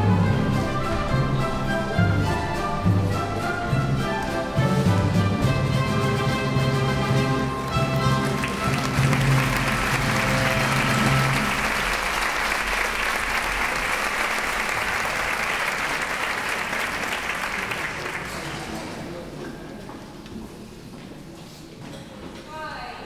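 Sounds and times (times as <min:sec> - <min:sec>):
orchestra final chord: 0:06.5 - 0:12.6
audience applauding: 0:07.5 - 0:19.2.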